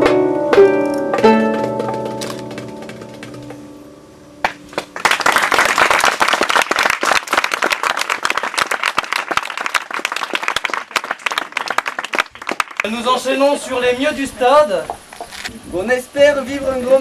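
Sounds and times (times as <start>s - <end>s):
harp notes: 0.0s - 5.0s
audience applause: 4.4s - 13.0s.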